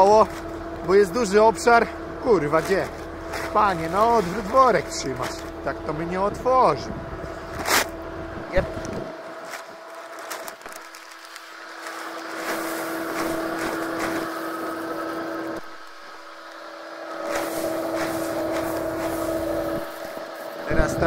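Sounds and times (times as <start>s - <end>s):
machine hum: 0.0s - 21.0s
seed pouring rattling hiss: 10.2s - 20.7s.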